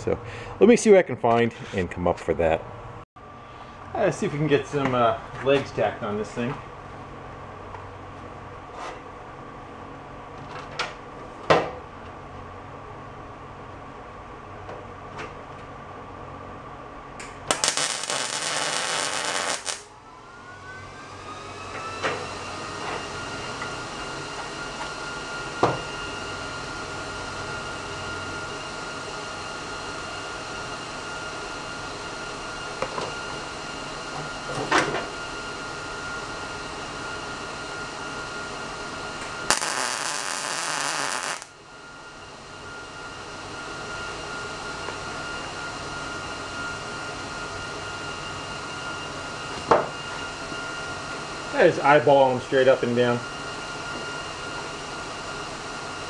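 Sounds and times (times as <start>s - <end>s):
machine whine: 16.6s - 56.0s
welder tack welding: 17.5s - 19.9s, 39.5s - 41.5s.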